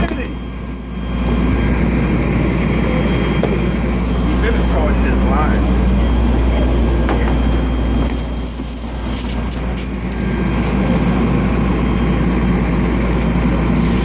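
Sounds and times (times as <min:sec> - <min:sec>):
heavy engine droning: 0:00.0 - 0:14.0.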